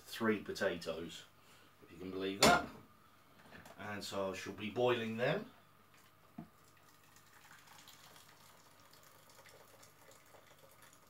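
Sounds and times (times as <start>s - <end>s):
water trickling into a pan: 5.9s - 11.0s.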